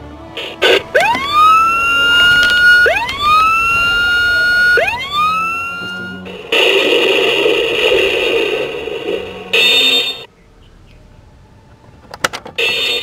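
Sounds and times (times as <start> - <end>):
electronic siren-like whoop: 0.6 - 6.3.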